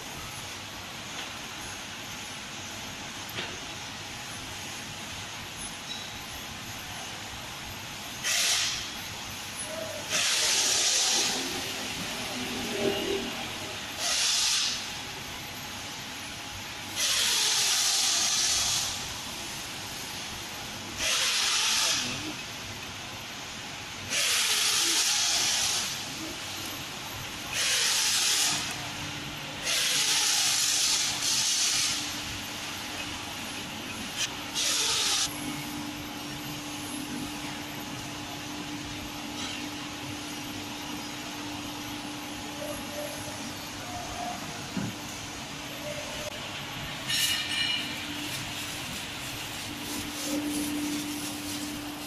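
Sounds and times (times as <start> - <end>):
loud hissing bursts: 10.1 - 11.9, 14.0 - 14.9, 17.0 - 19.0, 21.0 - 22.3, 24.1 - 26.4.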